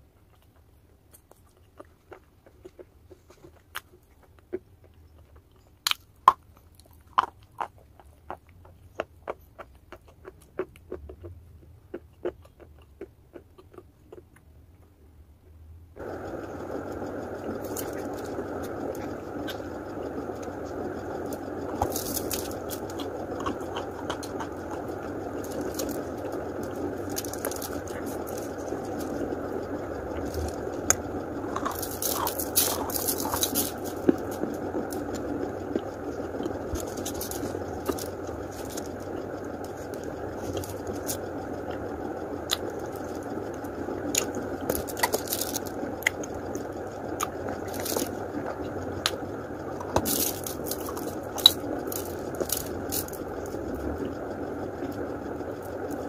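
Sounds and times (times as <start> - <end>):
steady hiss: 16.0 - 56.0
person crunching chalk: 21.2 - 29.4, 30.1 - 41.2.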